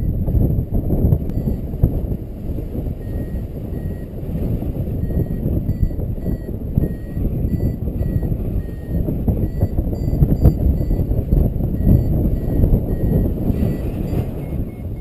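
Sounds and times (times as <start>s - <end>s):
wind rushing over microphone: 0.0s - 15.0s
variometer beeping in short pips: 1.3s - 1.7s, 3.0s - 4.2s, 5.0s - 15.0s.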